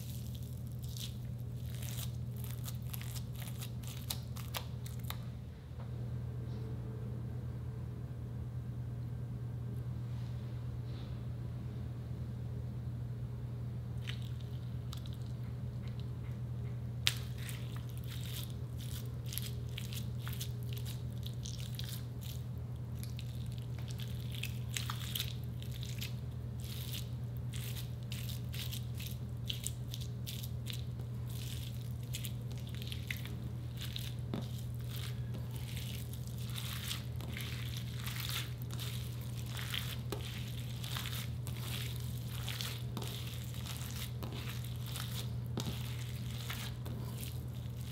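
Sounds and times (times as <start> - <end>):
slime squishing and crackling: 0.0 - 5.2, 17.0 - 47.9
steady low hum: 0.0 - 47.9.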